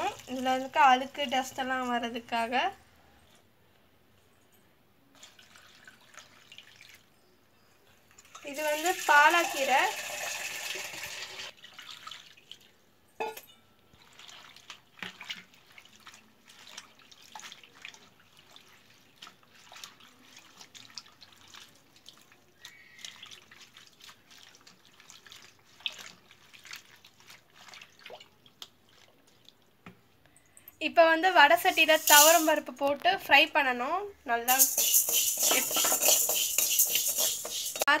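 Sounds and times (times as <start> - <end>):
small splashes and drips: 0.0 - 2.1, 5.1 - 7.2, 8.0 - 9.7, 10.6 - 30.8
hand swishing leaves in water: 14.0 - 29.5.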